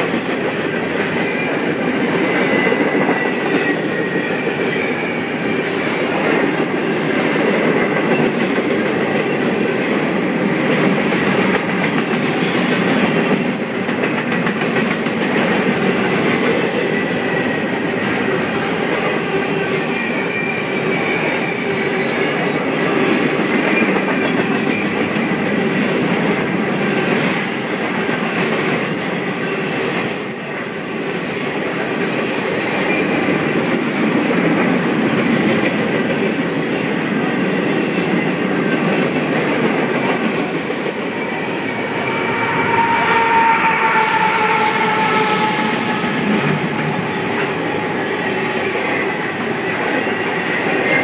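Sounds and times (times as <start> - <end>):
train wheels rumbling on rails: 0.0 - 51.0
wheel squeal: 40.8 - 49.1.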